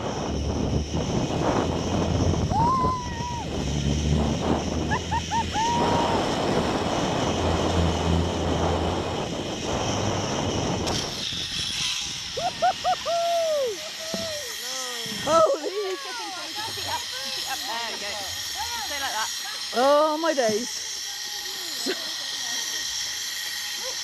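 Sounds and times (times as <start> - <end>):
wind rushing: 0.0 - 13.1
zip-line trolley on cable: 0.0 - 24.0
person whooping: 2.5 - 3.6, 4.8 - 6.4, 12.4 - 16.4.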